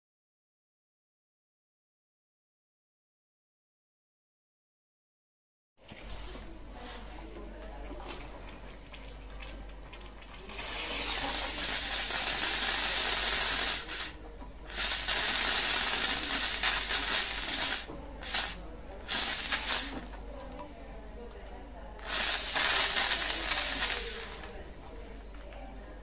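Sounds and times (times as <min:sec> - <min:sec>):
steam wand hissing: 0:10.5 - 0:20.1, 0:22.0 - 0:24.5.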